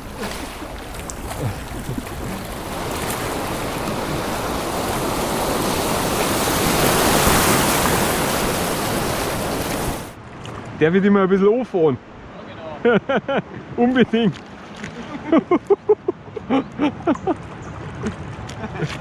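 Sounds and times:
river water rushing: 0.0s - 10.7s.

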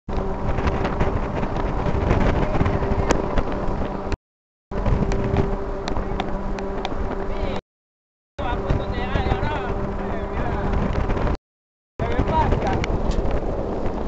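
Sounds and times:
motorcycle engine running: 0.1s - 7.6s
wind buffeting microphone: 0.1s - 7.6s, 8.4s - 11.4s, 12.0s - 14.0s.

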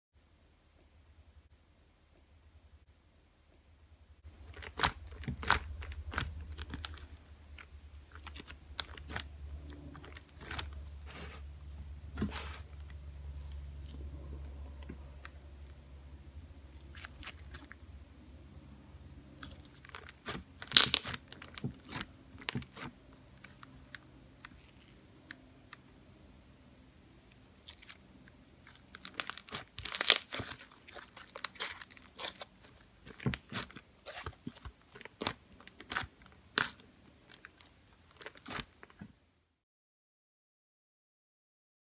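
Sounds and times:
low steady hum: 0.2s - 39.6s
slime crackling and popping: 4.4s - 9.3s, 9.9s - 10.7s, 19.4s - 25.0s, 28.6s - 39.0s.

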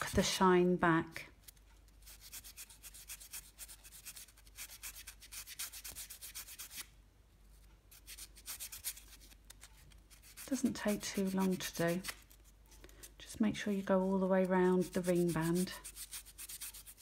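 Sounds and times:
sandpaper scratching metal ring: 14.6s - 17.0s.

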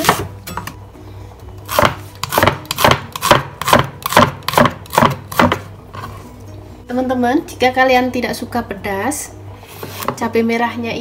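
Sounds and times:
knife chopping on wooden board: 1.7s - 5.7s.

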